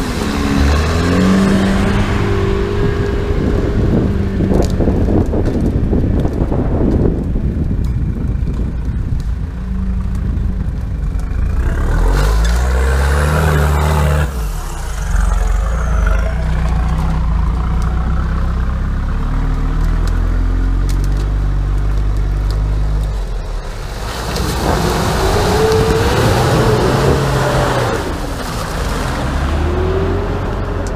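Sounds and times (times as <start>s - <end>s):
car engine revving hard: 11.6s - 17.0s, 24.4s - 30.5s.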